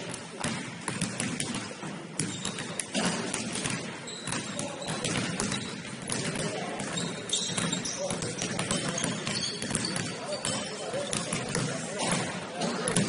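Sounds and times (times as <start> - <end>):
basketball bouncing: 0.0 - 13.0
shoe squeaks on court: 2.3 - 3.1, 4.0 - 5.8, 6.8 - 11.3.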